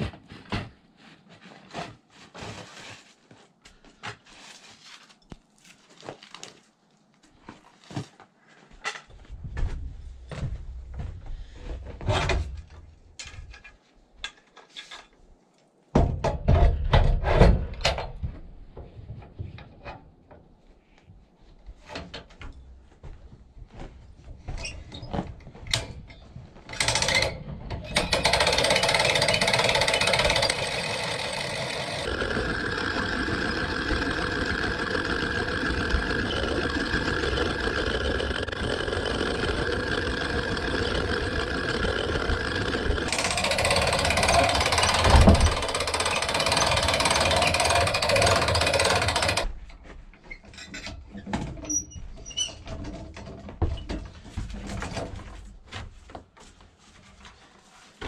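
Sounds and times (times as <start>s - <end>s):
winch ratchet pawl clattering: 26.8s - 49.5s.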